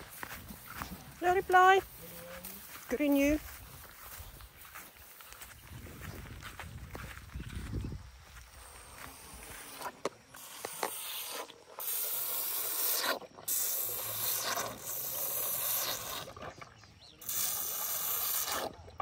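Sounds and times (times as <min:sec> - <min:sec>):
elephant sucking milk from bottle: 0:08.4 - 0:19.0.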